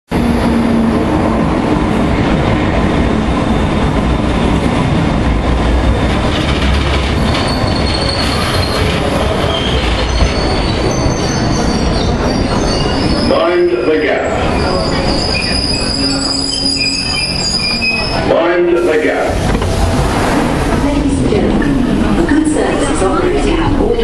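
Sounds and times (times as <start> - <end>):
train wheels rumbling on rails: 0.1 - 18.3, 18.9 - 24.0
high wheel squeals: 7.4 - 18.3.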